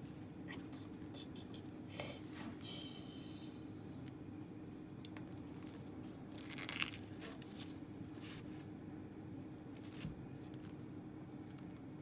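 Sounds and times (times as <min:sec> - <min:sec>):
corn husk tearing and rustling: 0:05.2 - 0:08.4.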